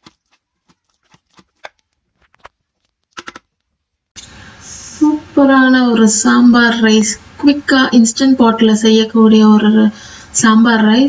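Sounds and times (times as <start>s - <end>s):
steady hiss: 4.2s - 8.0s.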